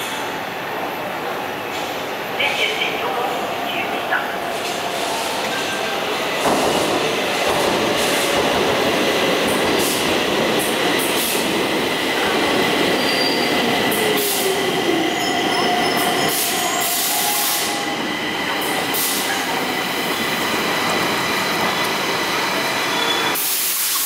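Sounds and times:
train braking to a stop: 0:12.7 - 0:24.0
steady high squeal: 0:22.6 - 0:23.4
short bursts of hiss: 0:23.4 - 0:24.0.

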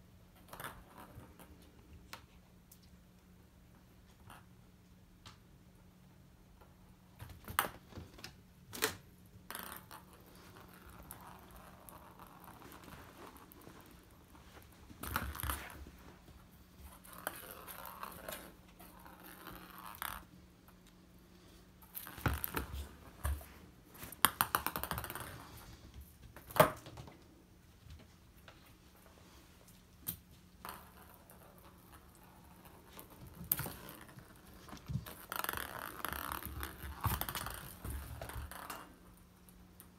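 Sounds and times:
ball knocking on floor and door: 0:22.0 - 0:23.4, 0:24.2 - 0:25.5, 0:32.8 - 0:38.9.

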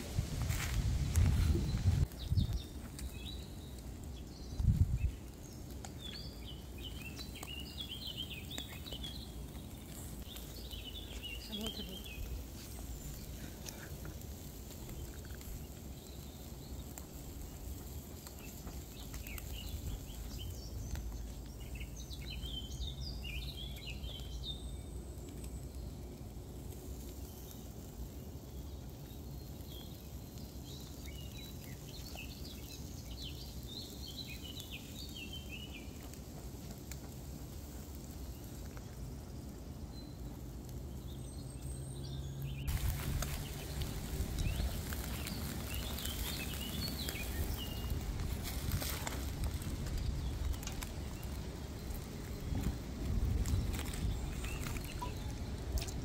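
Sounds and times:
footsteps and handling on gravel: 0:00.0 - 0:22.8, 0:42.7 - 0:56.0
birds chirping: 0:00.0 - 0:56.0
low outdoor rumble: 0:00.0 - 0:56.0.

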